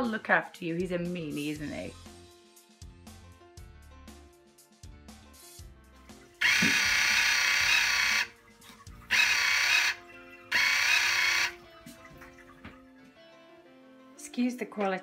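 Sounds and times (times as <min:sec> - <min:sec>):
faint background music: 0:00.0 - 0:15.0
toy car whirring: 0:06.4 - 0:08.3, 0:09.1 - 0:11.6.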